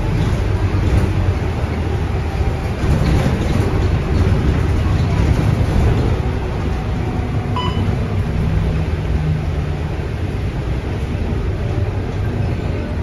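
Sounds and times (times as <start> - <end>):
bus diesel engine drone: 0.0 - 13.0
short electronic beep: 7.6 - 8.0.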